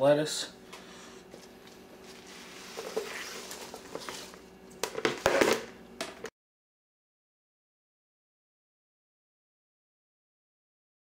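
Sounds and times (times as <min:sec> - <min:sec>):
lettuce rustling into salad spinner: 0:02.0 - 0:04.4.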